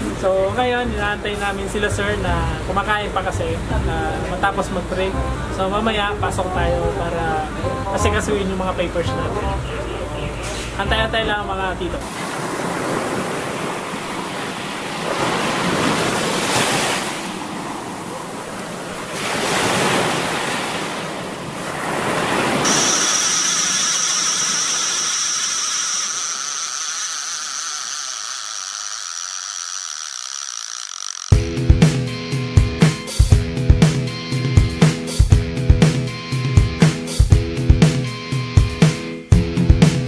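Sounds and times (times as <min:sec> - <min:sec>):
wind: 0:00.0 - 0:31.3
sea surf washing: 0:09.8 - 0:30.2
high-pitched whine: 0:22.6 - 0:31.4
music with drums: 0:31.3 - 0:40.0.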